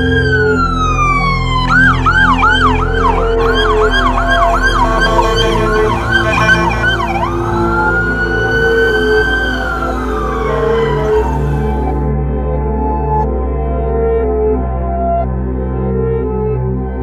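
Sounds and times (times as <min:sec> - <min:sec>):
electronic siren wailing and yelping: 0:00.4 - 0:12.1.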